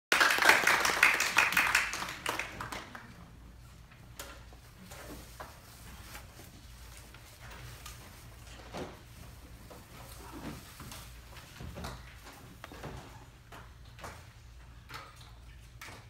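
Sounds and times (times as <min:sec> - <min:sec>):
audience applauding: 0:00.1 - 0:03.1.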